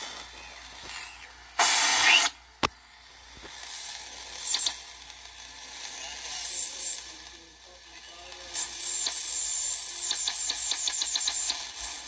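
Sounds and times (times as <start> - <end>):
radio static hiss: 0.0 - 2.8
loud burst of static: 1.6 - 2.3
sharp clicks: 4.5 - 4.8, 10.0 - 11.7.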